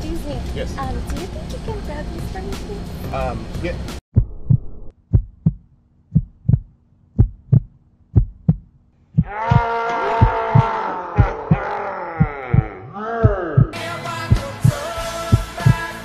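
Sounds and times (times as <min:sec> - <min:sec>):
heartbeat thumps: 0:04.2 - 0:15.9.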